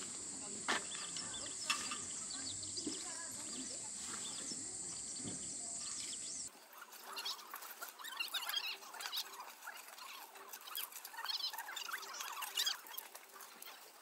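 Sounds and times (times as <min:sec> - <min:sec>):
steady high-pitched hiss: 0:00.0 - 0:06.5
light scattered ticks: 0:00.1 - 0:14.0
bird chirps: 0:00.8 - 0:06.5, 0:07.1 - 0:13.1.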